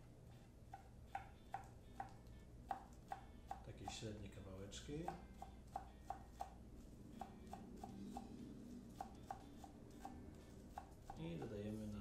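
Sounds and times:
knife tapping on wooden board: 0.7s - 4.1s, 5.0s - 6.6s, 7.2s - 8.3s.

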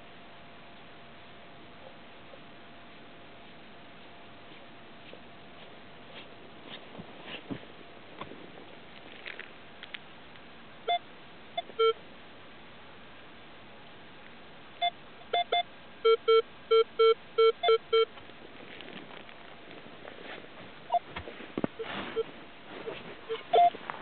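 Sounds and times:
metal detector beeps: 11.6s - 12.0s, 14.8s - 18.1s, 21.8s - 22.3s, 23.3s - 23.8s.

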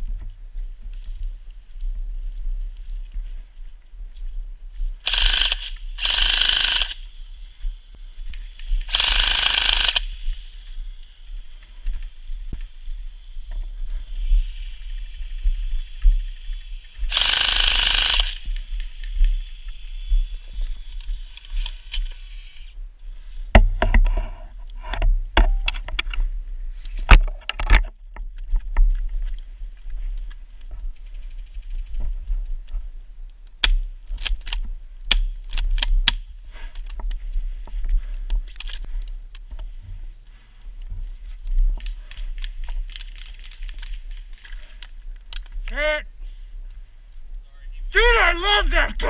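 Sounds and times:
airsoft machine gun burst: 5.1s - 7.0s, 8.9s - 10.2s, 17.1s - 18.4s.

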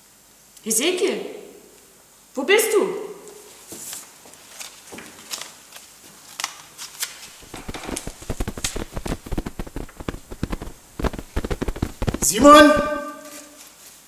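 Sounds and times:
rapid patter of taps and knocks: 7.4s - 12.9s
scattered clicks: 7.4s - 13.0s.

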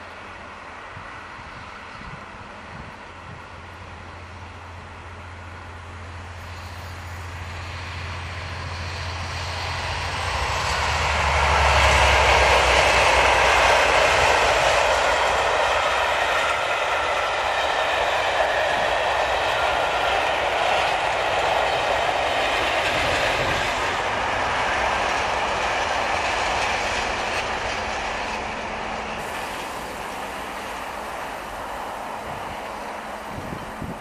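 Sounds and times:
train wheels rumbling on rails: 0.0s - 34.0s.

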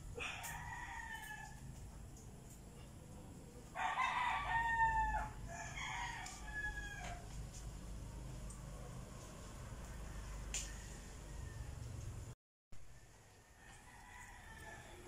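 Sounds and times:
roosters crowing: 0.0s - 2.2s, 3.6s - 7.5s, 9.6s - 15.0s.

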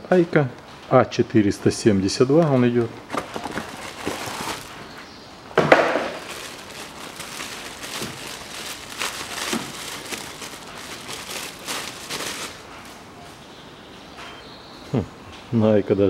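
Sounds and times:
plastic wrapping crinkling: 3.1s - 4.9s, 5.8s - 13.0s.

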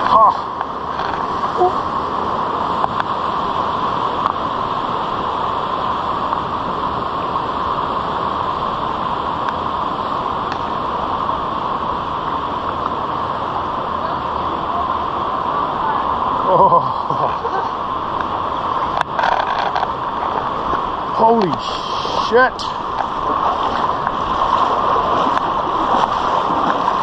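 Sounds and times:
stream rushing over rocks: 0.0s - 27.0s
stones clicking underfoot: 19.0s - 20.8s.

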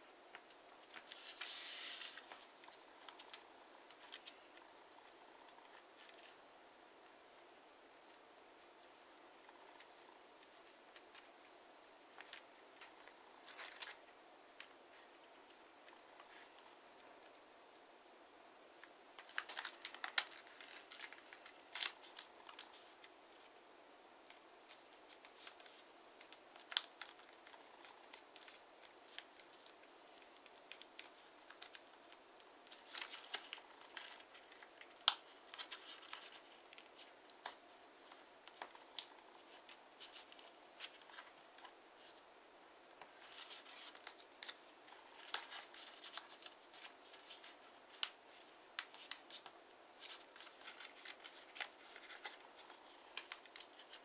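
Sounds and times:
paper rustling and crinkling: 0.3s - 4.7s, 12.1s - 16.6s, 18.8s - 23.5s, 24.3s - 42.2s, 43.0s - 54.0s
paper folds crackling: 0.3s - 6.4s, 12.1s - 17.3s, 18.8s - 23.5s, 24.3s - 42.2s, 43.0s - 54.0s.

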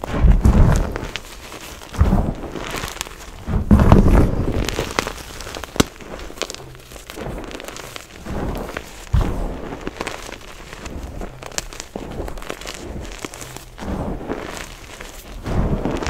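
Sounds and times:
chalk powder crunching: 0.0s - 16.0s
dull thump: 3.2s - 9.8s.

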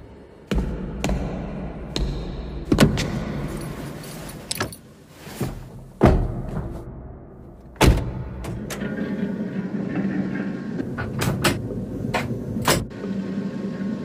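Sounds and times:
light metallic jingling: 3.5s - 5.0s.

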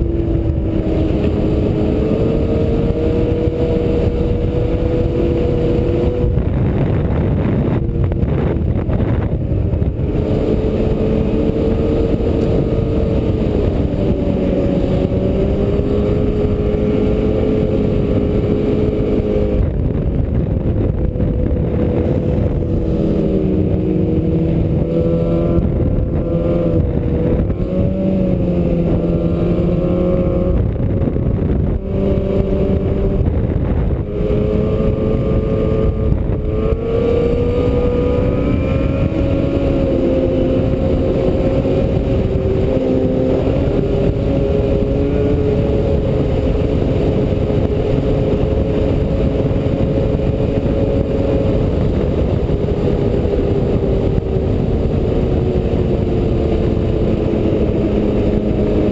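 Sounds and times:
constant rushing noise: 0.0s - 58.9s
snowmobile engine running: 0.0s - 58.9s.

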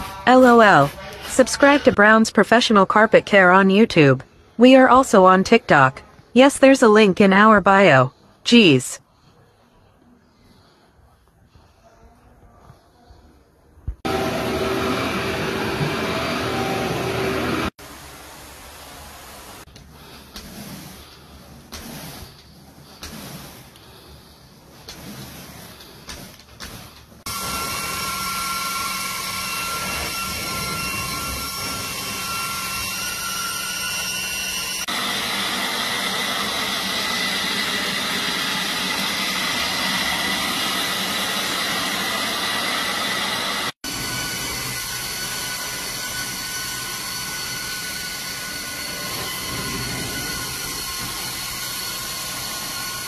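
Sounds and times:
carpet cleaner vacuum running: 14.0s - 17.8s, 20.0s - 53.0s
brush scratching over carpet: 19.8s - 27.3s
high whistling tones: 27.3s - 34.9s, 44.0s - 53.0s.

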